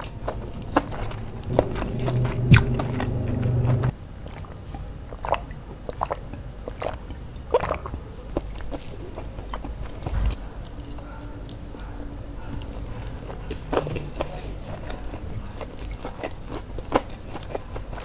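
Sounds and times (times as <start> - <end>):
low steady hum: 0.0 - 7.5
chewing and wet mouth clicks: 0.0 - 18.0.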